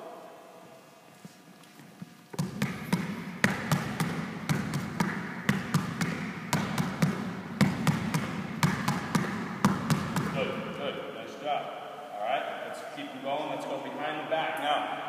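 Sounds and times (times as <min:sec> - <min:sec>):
basketball dribbling: 0:02.3 - 0:10.6.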